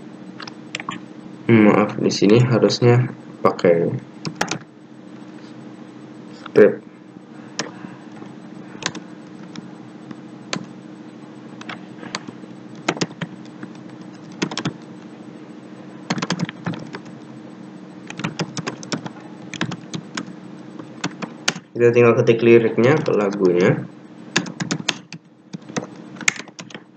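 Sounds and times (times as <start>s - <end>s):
steady low hum: 0.0s - 26.9s
computer keyboard typing: 0.4s - 1.0s, 4.2s - 4.7s, 8.8s - 10.7s, 11.6s - 14.9s, 16.1s - 17.2s, 18.0s - 21.8s, 22.8s - 23.6s, 24.3s - 26.8s.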